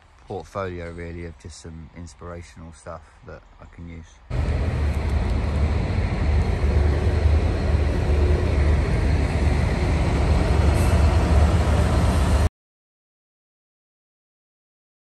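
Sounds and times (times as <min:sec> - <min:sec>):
diesel locomotive passing: 0:04.3 - 0:12.5
freight train rumbling past: 0:04.3 - 0:12.5.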